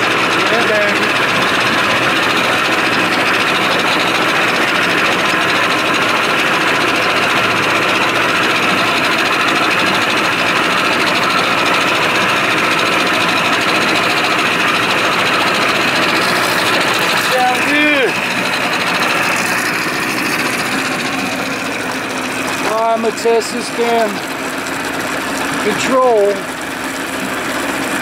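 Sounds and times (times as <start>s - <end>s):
outboard motor idling: 0.0s - 28.0s.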